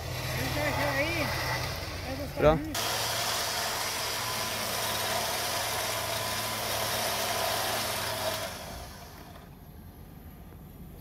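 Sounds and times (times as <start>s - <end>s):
electric winch motor whine: 0.0s - 9.7s.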